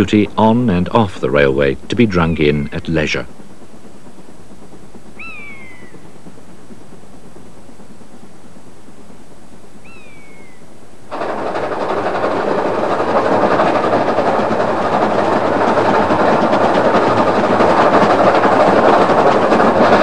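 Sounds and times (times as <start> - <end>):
steam locomotive passing: 0.0 - 20.0
falling bird call: 5.2 - 6.1.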